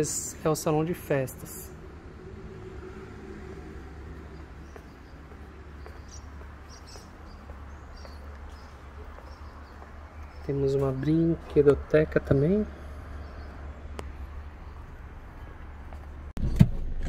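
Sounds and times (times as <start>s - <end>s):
distant traffic rumble: 0.0s - 16.4s
bird chirps: 4.1s - 11.5s.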